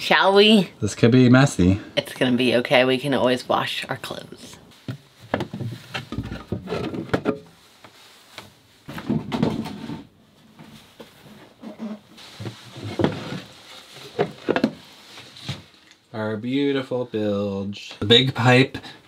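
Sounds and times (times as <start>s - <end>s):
wooden knocks and clatters: 4.9s - 7.5s, 8.9s - 10.1s, 12.8s - 13.5s, 14.1s - 14.8s.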